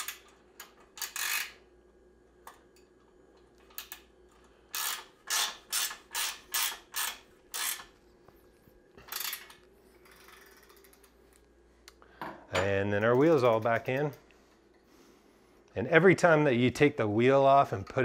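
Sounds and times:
ratchet wrench clicking: 0:00.0 - 0:01.6, 0:04.7 - 0:07.9, 0:09.1 - 0:11.0.

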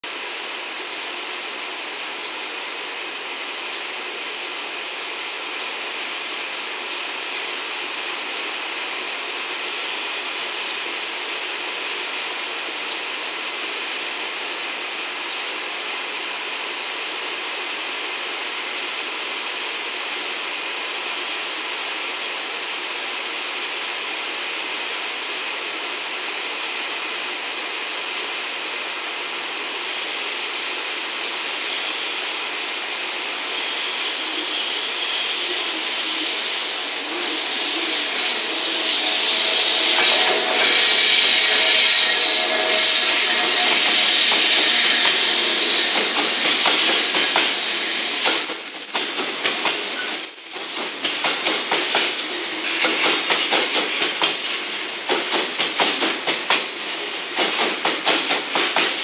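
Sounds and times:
electric locomotive running: 0:29.8 - 0:59.0.

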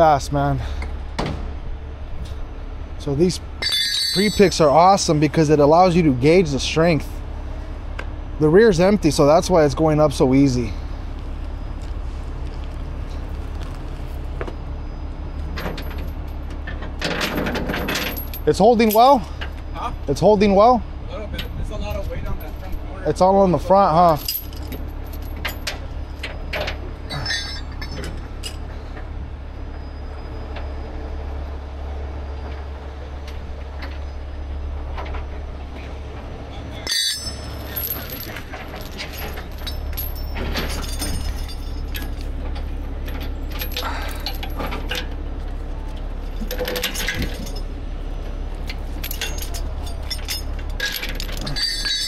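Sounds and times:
chain clinking and rattling: 0:03.6 - 0:05.2, 0:15.6 - 0:19.5, 0:23.9 - 0:28.7, 0:36.8 - 0:45.5, 0:46.2 - 0:47.8, 0:48.6 - 0:52.0.

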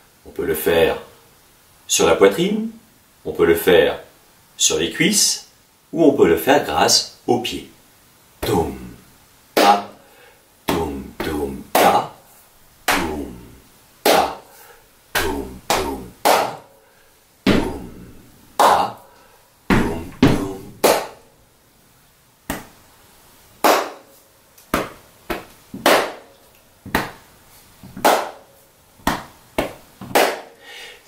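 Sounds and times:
hand claps and body slaps: 0:09.6 - 0:10.0, 0:10.7 - 0:12.0, 0:12.8 - 0:13.2, 0:14.0 - 0:14.5, 0:15.2 - 0:16.7, 0:18.6 - 0:19.0, 0:19.7 - 0:21.3, 0:22.4 - 0:22.8, 0:23.6 - 0:26.3, 0:26.9 - 0:27.2, 0:27.9 - 0:30.6.

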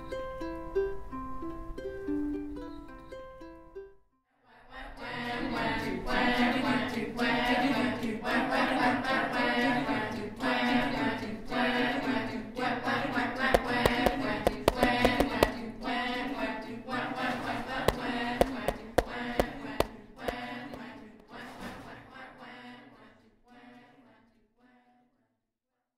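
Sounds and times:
group singing unaccompanied: 0:04.5 - 0:24.9
sharp clicks: 0:13.6 - 0:15.6.

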